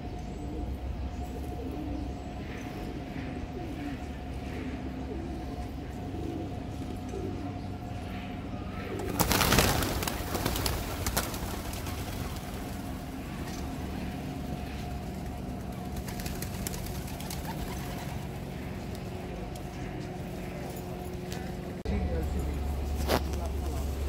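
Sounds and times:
steady background hum: 0.0 - 24.0
pigeon wingbeats clattering: 8.9 - 13.9, 15.1 - 21.9.

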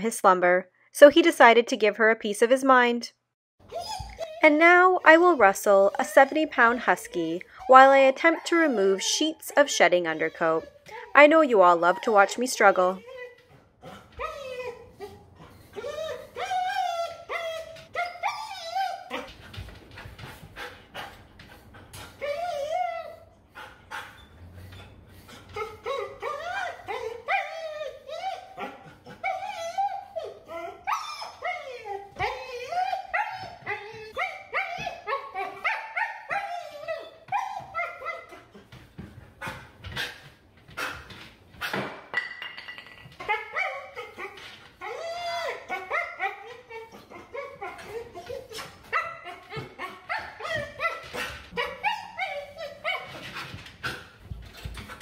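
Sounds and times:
dog screaming and yowling: 3.7 - 19.4, 25.5 - 38.7, 42.6 - 53.5.

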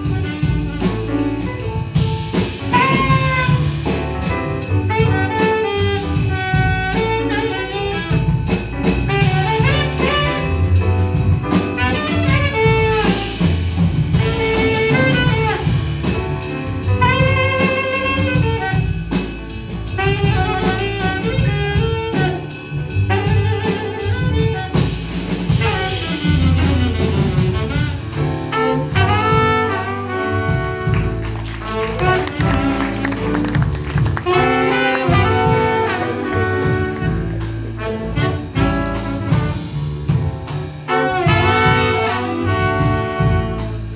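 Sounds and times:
alto saxophone solo: 0.0 - 43.9
double bass: 0.0 - 43.9
drum kit with cymbals: 0.0 - 43.9
piano: 0.0 - 43.9.

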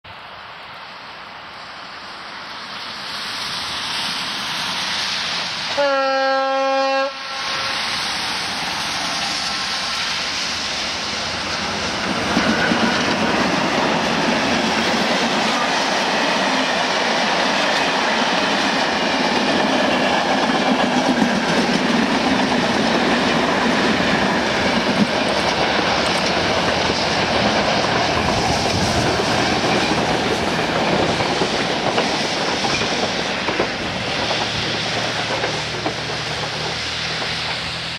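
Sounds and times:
locomotive horn: 5.7 - 7.9
train wheels clattering over rail joints: 11.2 - 37.9.

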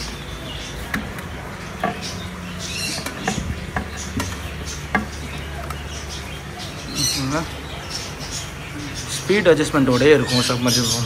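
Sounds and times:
plastic knocking on glass: 3.0 - 5.4.

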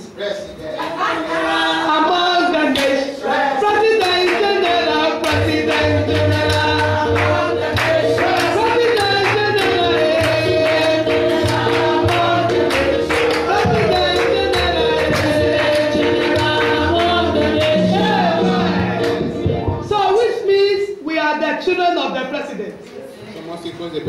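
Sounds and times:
congregation singing: 0.8 - 20.2
held accompanying chords: 1.0 - 20.3
hand-clapping: 2.7 - 3.0, 5.2 - 17.8
percussion beat: 3.8 - 20.2.

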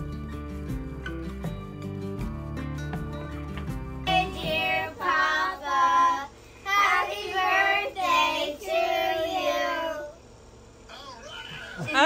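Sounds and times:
child singing: 4.1 - 10.2.

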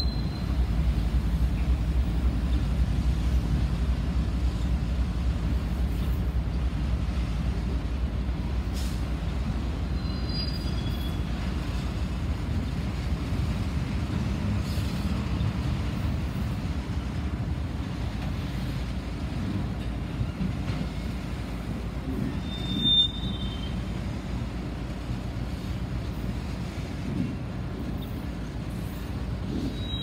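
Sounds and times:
train wheels rumbling on rails: 0.0 - 30.0
high wheel squeal: 9.9 - 11.3, 22.4 - 23.8, 29.7 - 30.0.

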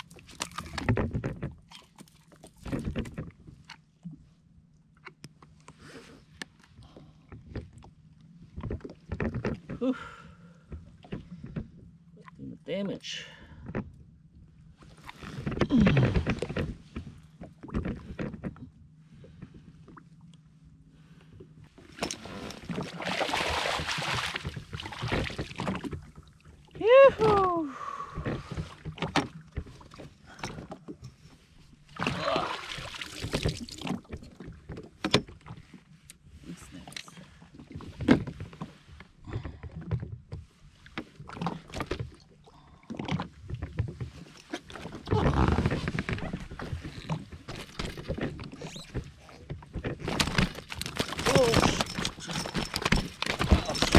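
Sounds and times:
fish thrashing splash: 22.7 - 25.6, 32.0 - 34.1
gear knocking and rustling: 43.5 - 53.9.

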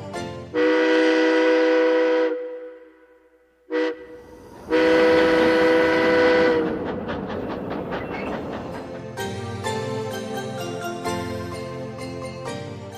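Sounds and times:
steam train whistle: 0.6 - 3.1, 3.7 - 6.7.

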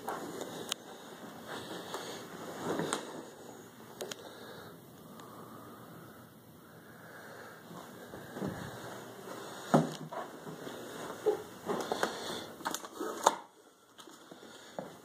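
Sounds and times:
footsteps on a staircase: 7.7 - 12.2.

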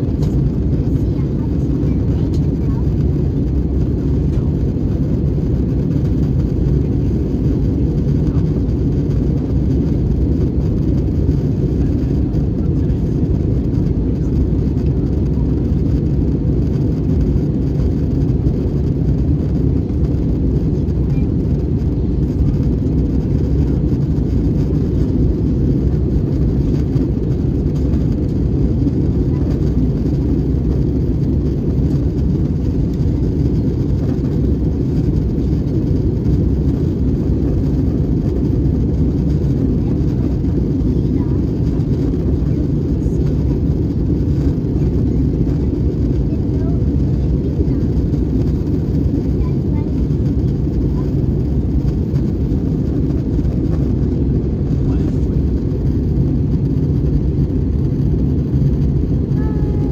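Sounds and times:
airliner cabin engine rumble: 0.0 - 59.9.

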